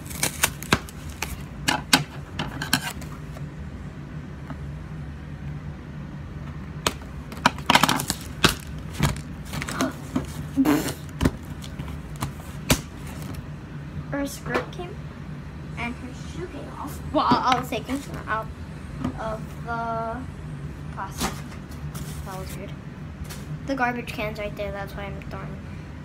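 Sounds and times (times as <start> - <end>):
packaging rustling and crinkling: 0.0 - 1.5, 7.4 - 13.4
low steady hum: 0.0 - 26.0.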